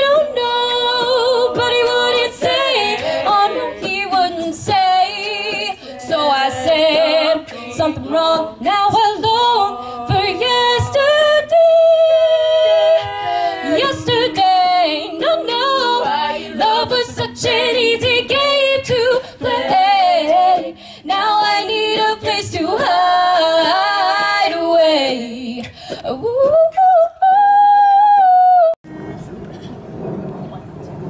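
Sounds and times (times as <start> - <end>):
unaccompanied backing voices: 12.9 - 16.8.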